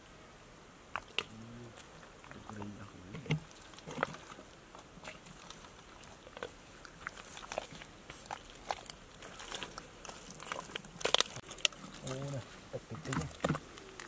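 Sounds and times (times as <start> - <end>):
boots squelching in mud: 3.4 - 14.0.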